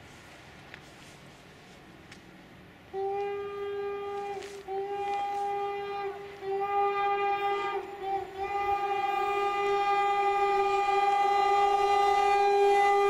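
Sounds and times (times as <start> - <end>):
train horn blast: 2.9 - 13.0.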